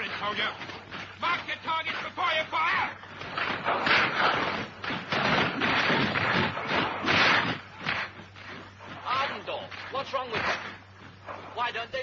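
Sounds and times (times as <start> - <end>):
thuds: 3.1 - 11.6.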